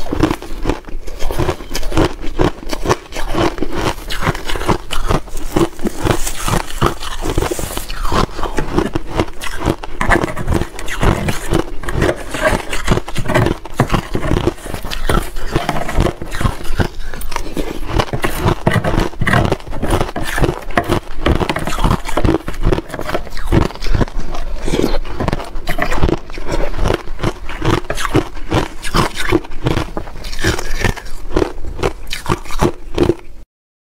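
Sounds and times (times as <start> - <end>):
chewing crunchy shaved ice: 0.0 - 33.4
spoon scraping ice in plastic tub: 2.7 - 24.2.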